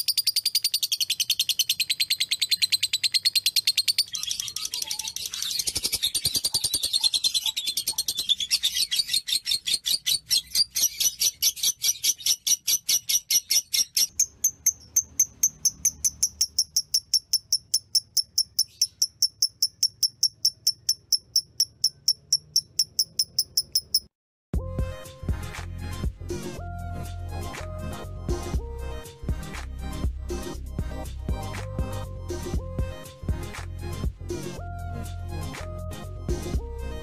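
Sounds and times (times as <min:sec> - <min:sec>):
lovebird rapid high chattering: 0:00.0 - 0:08.8, 0:10.9 - 0:24.1.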